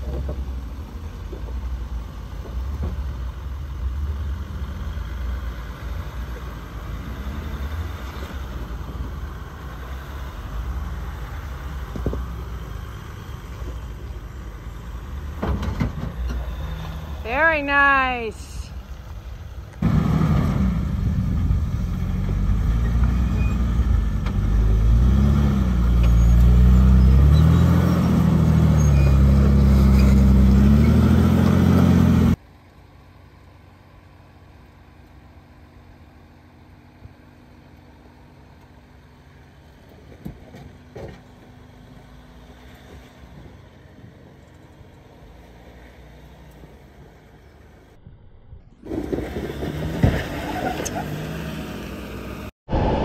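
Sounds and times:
off-road vehicle engine revving: 2.0 - 18.1, 19.8 - 32.4, 48.8 - 53.0.

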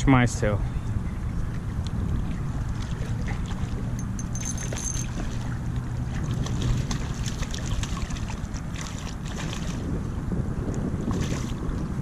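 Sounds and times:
wind rumble on microphone: 0.0 - 12.0
fish splashing at water surface: 2.8 - 9.9.

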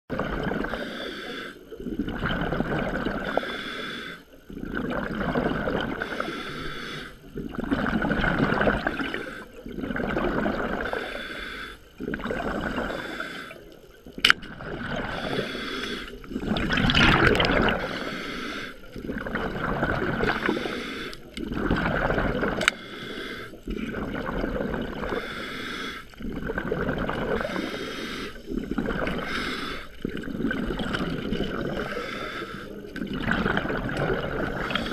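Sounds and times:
rush of exhaled bubbles: 0.1 - 1.0, 1.7 - 3.5, 4.5 - 6.4, 7.2 - 11.2, 12.0 - 34.9
regulator hiss on inhale: 0.7 - 1.8, 3.2 - 4.4, 6.0 - 7.3, 10.8 - 11.9, 12.6 - 13.8, 15.1 - 16.6, 17.8 - 19.0, 20.3 - 21.4, 22.7 - 23.9, 25.1 - 26.2, 27.4 - 30.1, 31.7 - 32.9, 34.5 - 34.9.

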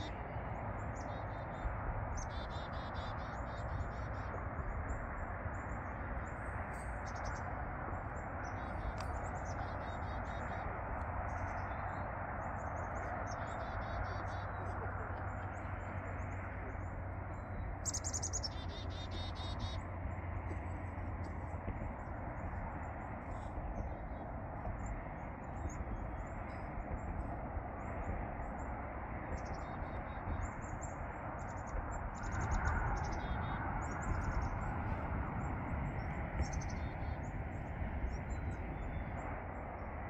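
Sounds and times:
background rush and rumble: 0.0 - 40.0
small birds chirping: 0.0 - 40.0.

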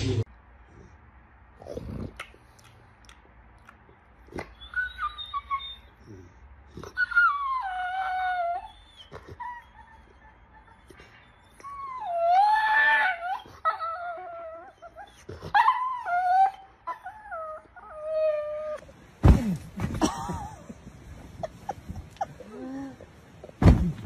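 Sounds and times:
puppy howling and whining: 4.4 - 24.0.

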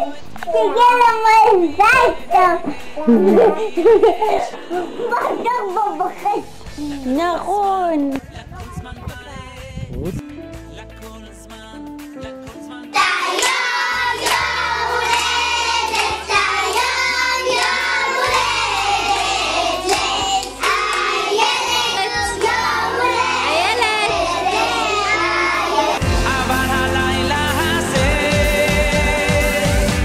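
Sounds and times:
backing music: 0.0 - 30.0
girls singing together: 1.7 - 5.1, 12.9 - 26.0.

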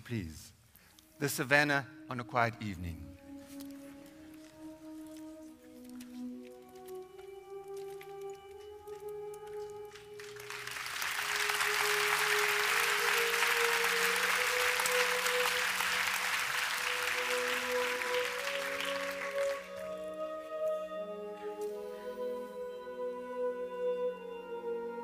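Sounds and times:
slow ambient music: 0.0 - 25.0
audience applauding: 9.6 - 20.0.

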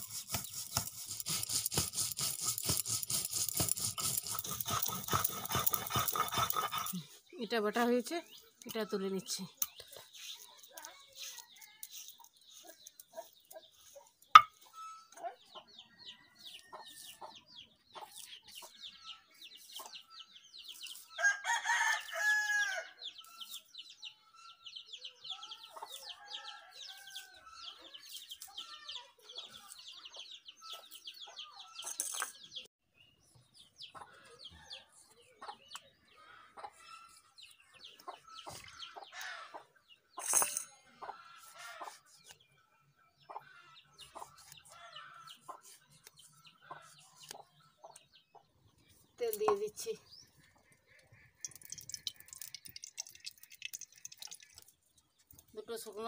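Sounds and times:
chickens clucking: 9.6 - 20.2, 33.8 - 39.8, 43.2 - 48.6.

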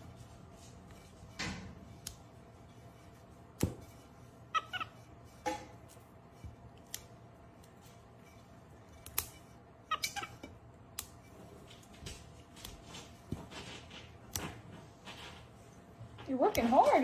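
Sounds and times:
green beans snapping: 10.9 - 11.2.

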